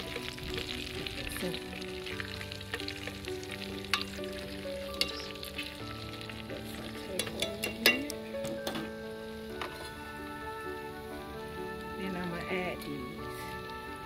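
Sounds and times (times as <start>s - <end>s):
vegetables sizzling in a pot: 0.0s - 14.0s
metal tongs clicking against pot: 7.1s - 8.9s.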